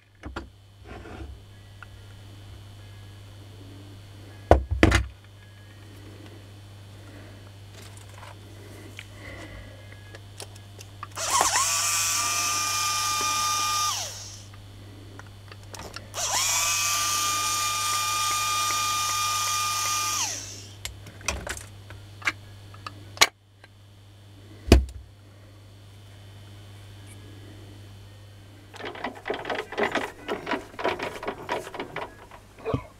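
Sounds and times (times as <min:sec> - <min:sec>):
electric motor whining: 0:11.1 - 0:14.6, 0:16.1 - 0:20.9.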